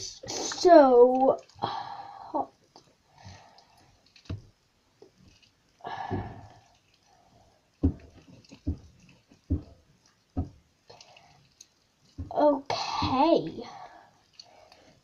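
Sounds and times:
slime squelching: 0:00.0 - 0:15.0.

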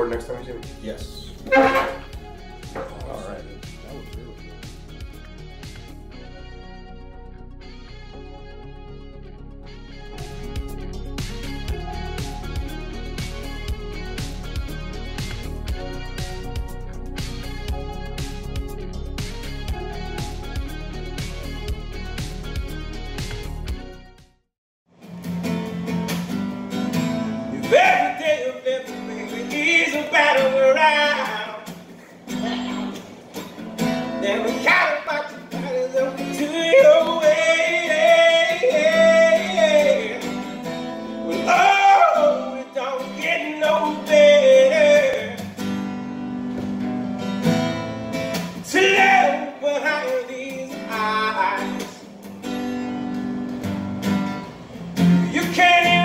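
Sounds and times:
strummed acoustic guitar: 0:01.3 - 0:03.4, 0:25.0 - 0:56.0
man singing: 0:27.5 - 0:31.8, 0:34.0 - 0:40.6, 0:41.2 - 0:45.4, 0:48.7 - 0:52.0, 0:55.2 - 0:56.0.

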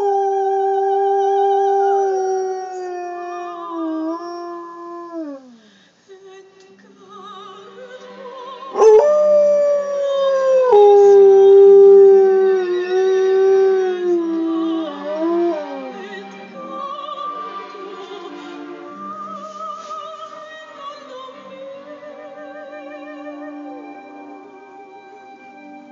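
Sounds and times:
dog howling: 0:00.0 - 0:05.6, 0:08.8 - 0:16.0
soprano singing opera: 0:00.0 - 0:25.9.

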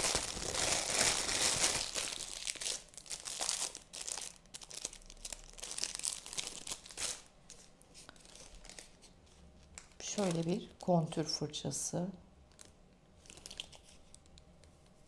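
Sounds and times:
plastic bag crinkling: 0:00.0 - 0:09.1, 0:09.8 - 0:10.9, 0:12.5 - 0:14.3.

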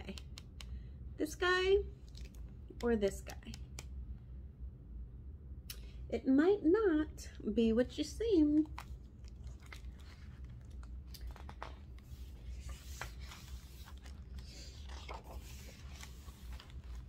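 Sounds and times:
book pages turning: 0:08.6 - 0:17.0.

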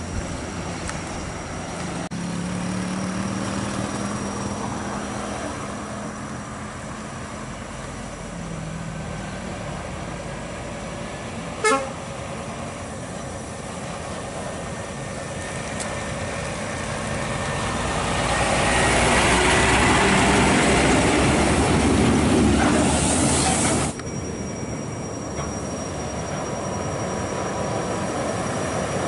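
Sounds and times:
truck diesel engine passing: 0:00.0 - 0:29.0
horn toot: 0:11.6 - 0:12.0.

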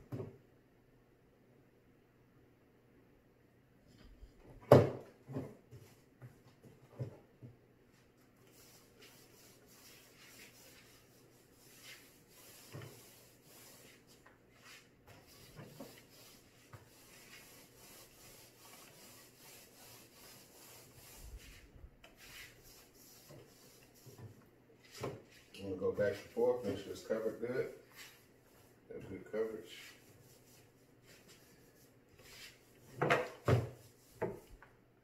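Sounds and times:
paint roller rubbing: 0:08.2 - 0:34.6.

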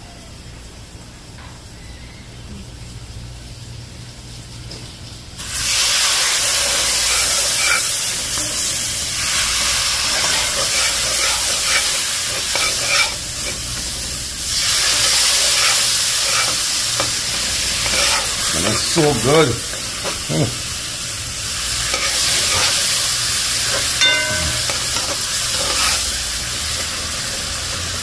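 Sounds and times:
loud sizzle and hiss: 0:02.8 - 0:28.0
metal spoon stirring: 0:10.1 - 0:13.6, 0:15.4 - 0:18.8, 0:23.7 - 0:26.0.

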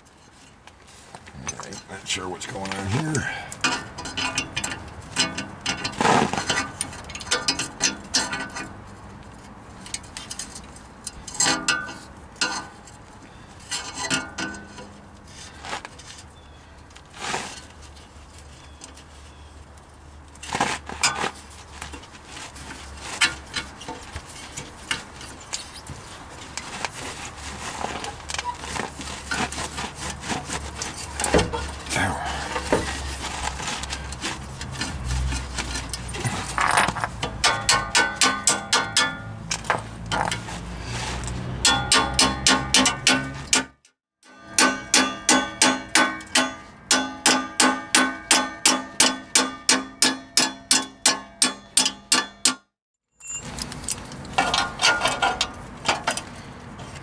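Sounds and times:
metal scraping and squealing: 0:22.4 - 0:37.0.

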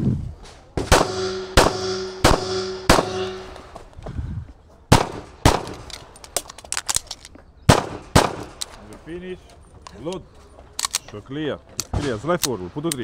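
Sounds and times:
pistol shots: 0:00.8 - 0:03.6, 0:04.9 - 0:06.0, 0:07.7 - 0:08.7
metallic ringing of steel targets: 0:00.9 - 0:03.7.

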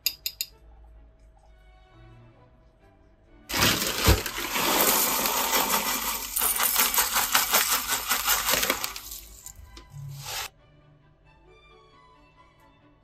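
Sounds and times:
seeds rattling into bowls: 0:03.5 - 0:10.5.

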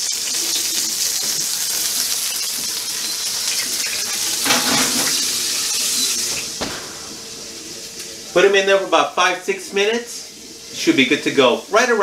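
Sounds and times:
steaks sizzling in oil: 0:00.0 - 0:12.0
pan scraping on oven rack: 0:04.4 - 0:05.5.

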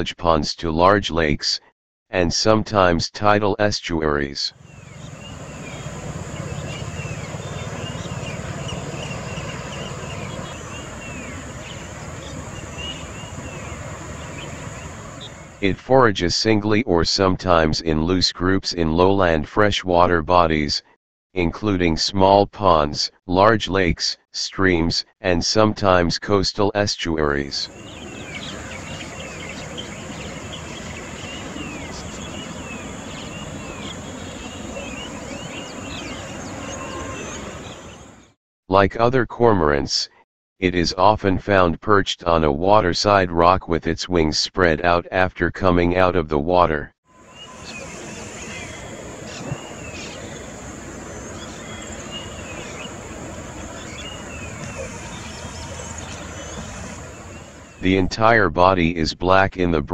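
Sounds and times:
background hiss: 0:04.6 - 0:15.6, 0:27.7 - 0:38.1, 0:47.2 - 0:57.8
small birds chirping: 0:04.6 - 0:15.6, 0:27.7 - 0:38.4, 0:47.2 - 0:58.0.

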